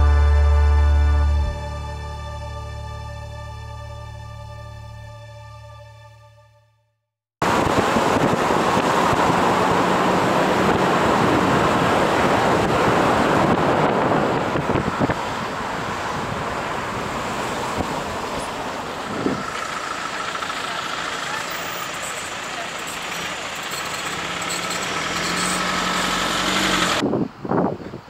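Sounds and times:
wind buffeting microphone: 7.4s - 19.6s, 27.0s - 28.0s
tyre and road noise: 7.4s - 28.0s.

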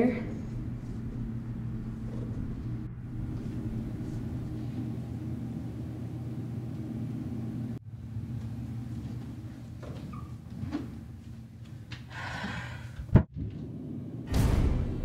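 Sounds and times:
low hum: 0.0s - 9.5s.

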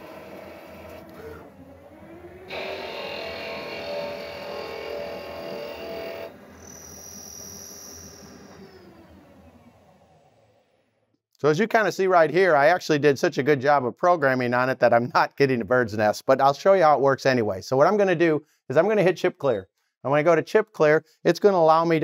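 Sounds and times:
lathe cutting metal: 0.0s - 10.1s
lathe spindle running: 0.0s - 10.8s
high whine: 0.0s - 10.9s.

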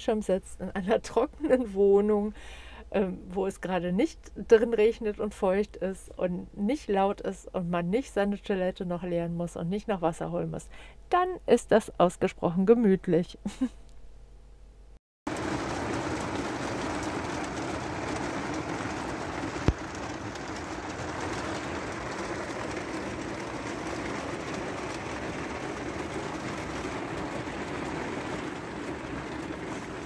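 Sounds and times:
rain pattering on metal roof: 15.3s - 30.0s.

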